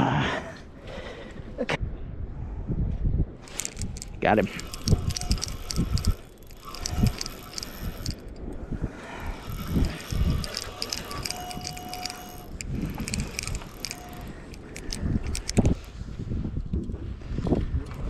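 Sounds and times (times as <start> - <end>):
fishing reel clicking: 3.5 - 15.8.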